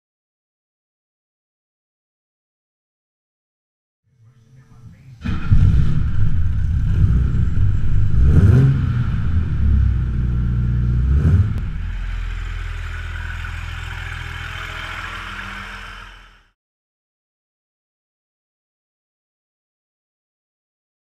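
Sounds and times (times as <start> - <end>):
car engine revving and idling: 5.2 - 16.5.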